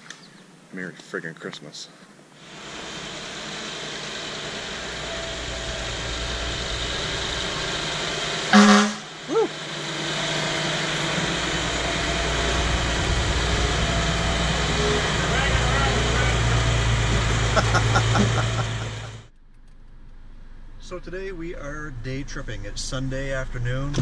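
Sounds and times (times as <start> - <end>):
fire engine engine: 2.4 - 19.3
horn blast: 4.2 - 9.5, 10.3 - 19.3
siren chirp: 4.5 - 9.6.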